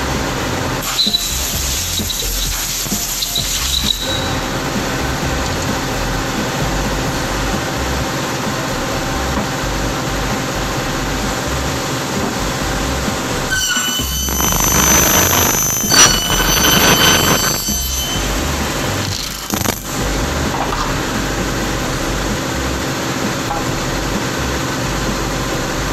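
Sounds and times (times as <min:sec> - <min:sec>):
circular saw running: 0:00.0 - 0:25.9
saw blade squealing on metal: 0:00.8 - 0:04.8, 0:13.5 - 0:19.8.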